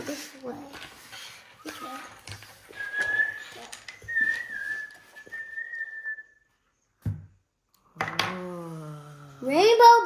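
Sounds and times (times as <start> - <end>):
person whistling long note: 2.7 - 6.5.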